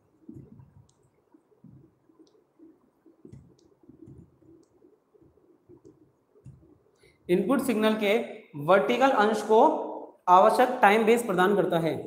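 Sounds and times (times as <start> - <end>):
marker writing on whiteboard: 0.0 - 7.8.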